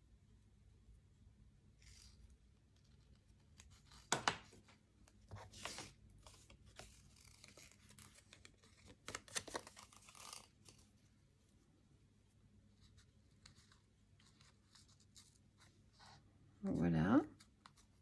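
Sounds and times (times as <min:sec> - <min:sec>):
paper and ribbon crinkling: 0:05.4 - 0:10.9.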